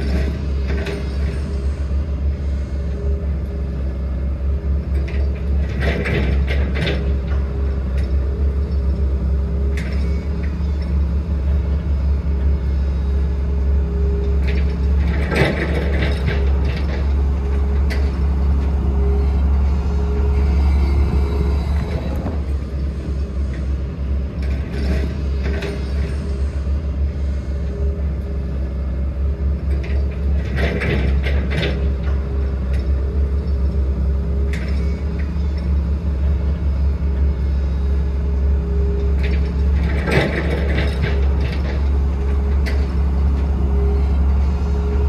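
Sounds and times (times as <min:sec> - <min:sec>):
metallic clanks and rattles: 0:00.0 - 0:01.6, 0:04.9 - 0:11.7, 0:14.2 - 0:23.7, 0:24.3 - 0:26.4, 0:29.6 - 0:36.4, 0:39.0 - 0:44.2
diesel engine drone: 0:00.0 - 0:45.0.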